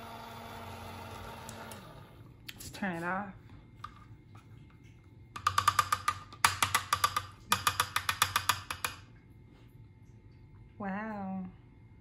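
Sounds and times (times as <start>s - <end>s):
brush knocking against plastic: 5.4s - 9.0s.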